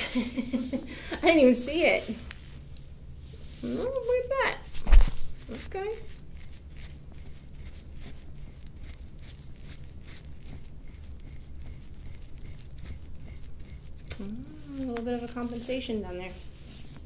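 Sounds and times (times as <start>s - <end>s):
metal tool scraping skin: 5.6s - 14.2s.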